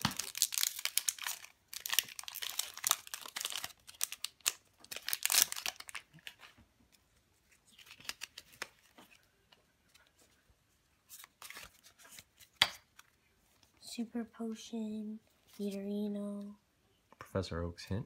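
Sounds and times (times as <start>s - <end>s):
foil wrapper crinkling and tearing: 0.0s - 6.4s, 7.7s - 8.7s.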